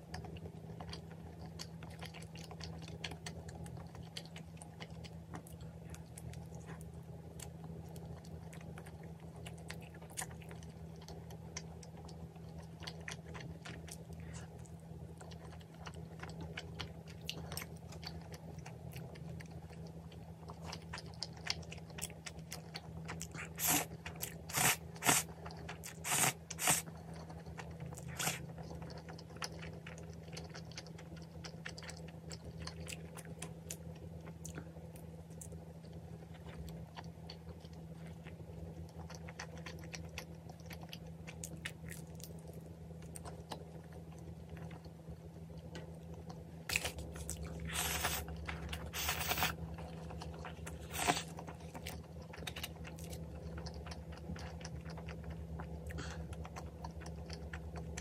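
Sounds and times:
crunchy chewing: 0.0s - 58.0s
faint low hum: 0.0s - 58.0s
noodle slurps: 24.5s - 25.3s, 25.9s - 26.8s, 48.9s - 49.6s.

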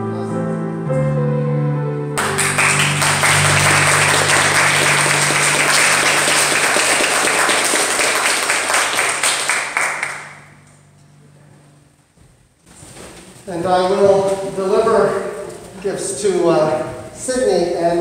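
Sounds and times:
crowd applauding: 2.2s - 10.6s.

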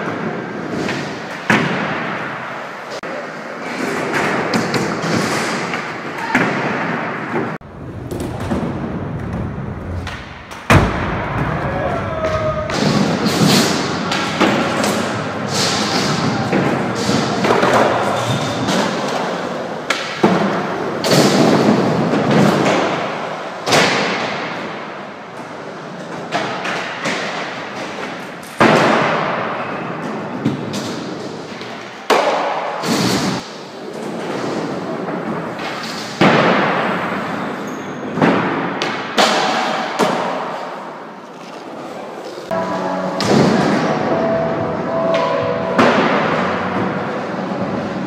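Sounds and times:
skateboards rolling: 0.0s - 10.7s, 12.0s - 42.6s
skateboard slaps and clacks: 12.2s - 33.5s, 38.1s - 40.8s.

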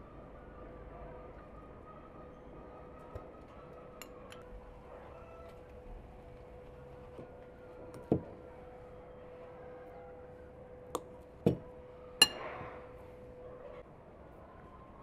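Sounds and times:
knife clinking against bowl: 12.2s - 12.5s.

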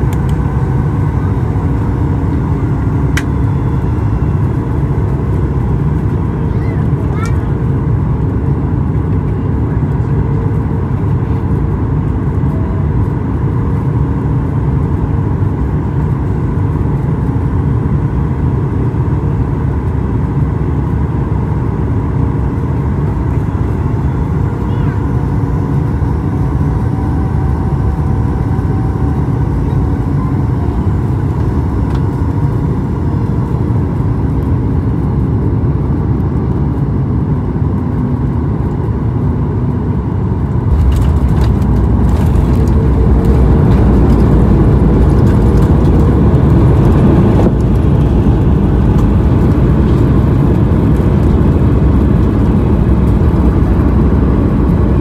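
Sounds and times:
airplane engine and airflow noise: 0.0s - 55.0s
wheels touching down rumble: 40.5s - 55.0s.

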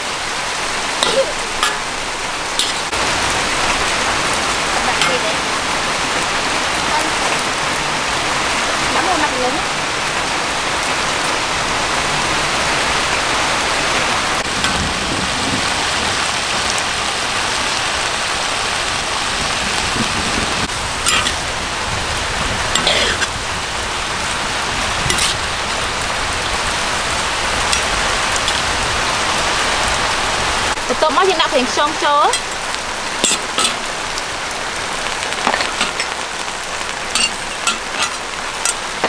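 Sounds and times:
metal ladle clinking and scraping: 1.0s - 2.0s, 2.6s - 2.9s, 21.0s - 21.4s, 22.8s - 23.3s, 25.1s - 25.4s, 27.7s - 28.7s, 33.2s - 33.9s, 35.4s - 36.2s, 37.1s - 38.9s
vegetables sizzling in a wok: 20.6s - 30.0s, 31.2s - 39.0s.

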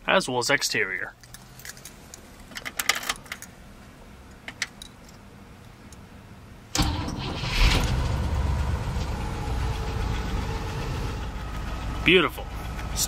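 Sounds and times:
car engine starting and idling: 1.2s - 13.0s.

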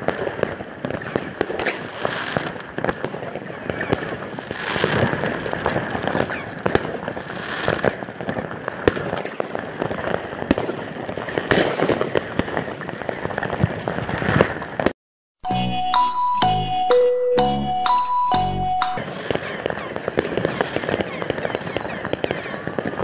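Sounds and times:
fireworks bangs and crackling: 0.0s - 15.0s, 19.0s - 23.0s.

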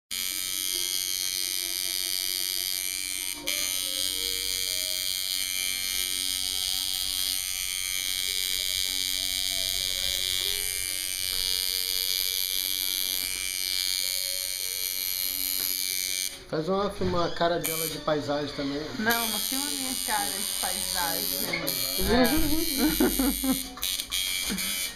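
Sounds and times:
tattoo machine click: 0.1s - 16.4s, 17.6s - 18.0s, 19.1s - 24.9s
tattoo machine buzzing: 0.1s - 24.9s.

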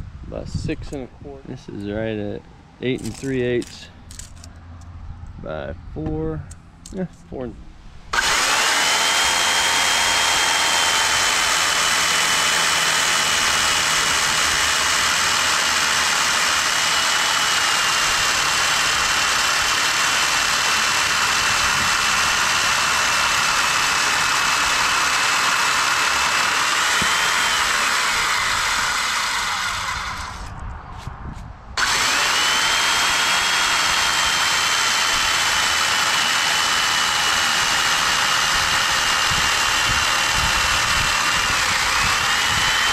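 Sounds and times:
chainsaw cutting timber beam: 8.1s - 30.6s, 31.8s - 42.9s
motor whine: 8.1s - 30.6s, 31.8s - 42.9s.

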